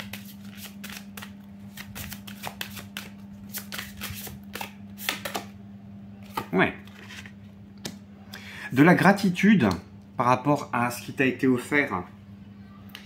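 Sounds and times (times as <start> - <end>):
cards being shuffled: 0.0 - 5.5.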